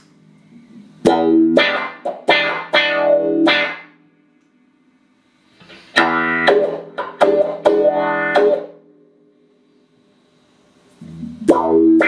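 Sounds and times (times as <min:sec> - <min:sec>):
clean electric guitar chords: 0:01.0 - 0:03.8, 0:06.0 - 0:08.8, 0:11.0 - 0:12.0.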